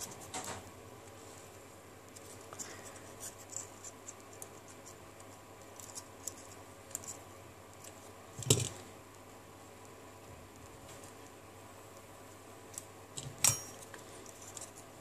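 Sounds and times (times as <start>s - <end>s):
fingers scratching and clicking: 2.1s - 8.0s.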